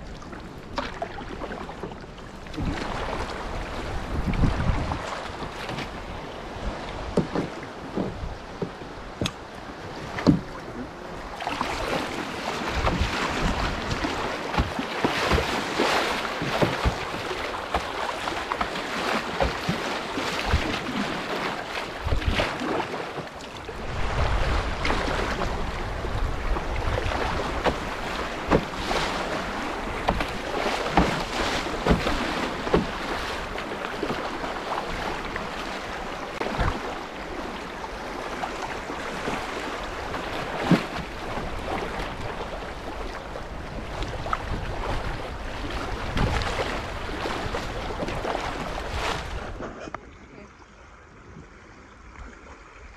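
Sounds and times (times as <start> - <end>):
river water rushing against hull: 0.0 - 52.9
wind on microphone: 2.4 - 14.8, 22.0 - 22.7, 23.6 - 49.9.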